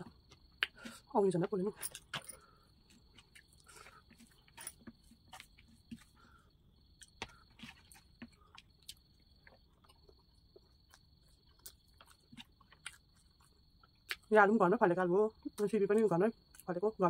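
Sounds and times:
chewing clicks: 7.0 - 14.3.

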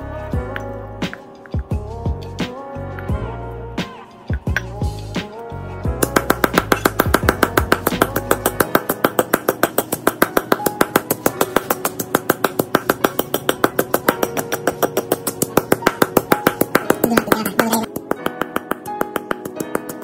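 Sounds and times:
stone pestle pounding in mortar: 6.0 - 20.0.

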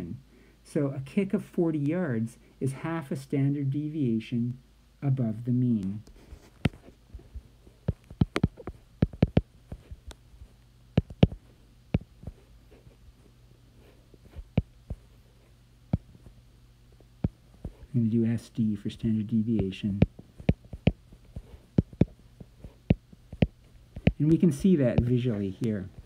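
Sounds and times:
faint low hum: 0.0 - 26.0
stylus tapping on glass screen: 7.9 - 9.9.

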